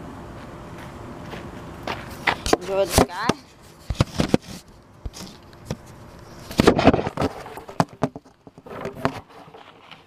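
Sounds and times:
camera handling knocks and rubbing: 1.9s - 9.3s.

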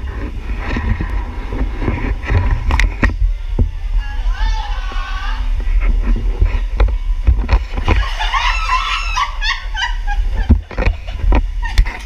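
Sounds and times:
low rumble: 0.0s - 12.0s
woman's excited cries: 8.0s - 10.1s
woman shrieking: 8.2s - 9.7s.

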